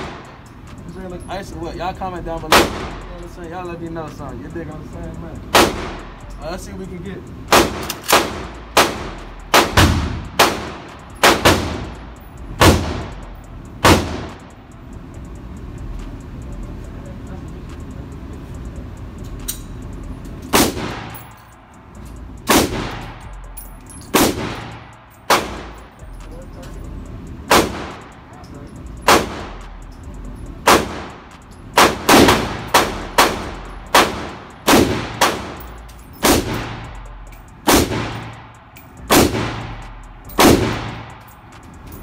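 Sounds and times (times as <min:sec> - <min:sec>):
pistol shots echoing indoors: 0:05.5 - 0:06.1, 0:07.5 - 0:12.0, 0:13.8 - 0:14.4, 0:29.0 - 0:29.6, 0:30.6 - 0:31.2, 0:31.8 - 0:36.9, 0:37.6 - 0:39.8, 0:40.4 - 0:41.3.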